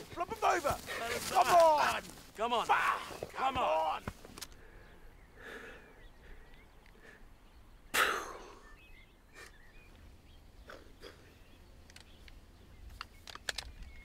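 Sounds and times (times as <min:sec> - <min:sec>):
loud breathy noise: 0:04.4 - 0:07.4
faint bird chirps: 0:04.6 - 0:14.0.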